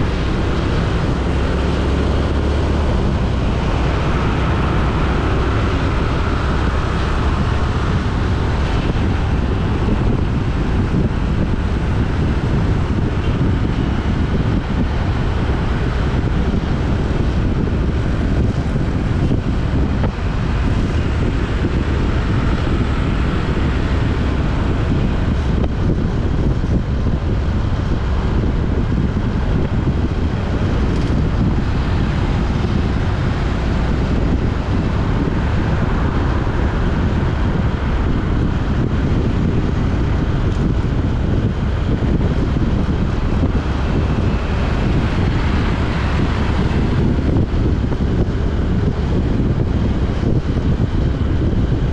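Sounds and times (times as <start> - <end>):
vehicle rumble: 0.0 - 51.9
wind rushing over microphone: 0.0 - 51.9.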